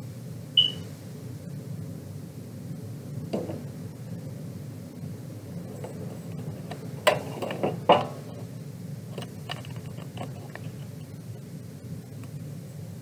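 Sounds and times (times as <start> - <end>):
steady low hum: 0.0 - 13.0
handling knocks and clicks: 5.8 - 8.4, 9.2 - 10.9.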